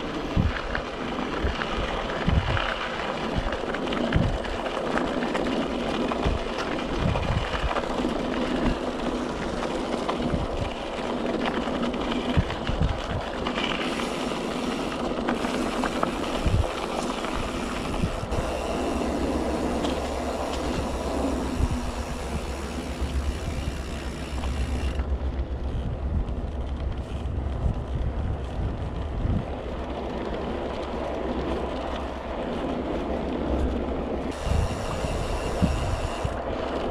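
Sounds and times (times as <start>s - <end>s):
bike rattling over bumps: 0.0s - 36.9s
bike tyres crunching on gravel: 0.0s - 36.9s
low rumble: 17.9s - 35.0s.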